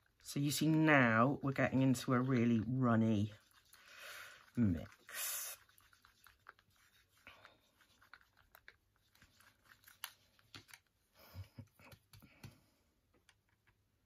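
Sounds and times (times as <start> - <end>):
wooden stick scraping plastic pot: 4.4 - 10.8.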